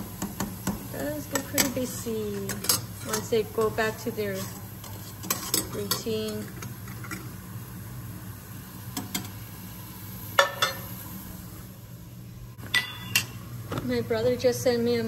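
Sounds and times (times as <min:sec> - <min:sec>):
steady low hum: 0:00.0 - 0:15.0
utensil clinking against pot: 0:00.2 - 0:07.3, 0:10.4 - 0:10.9, 0:12.7 - 0:13.4.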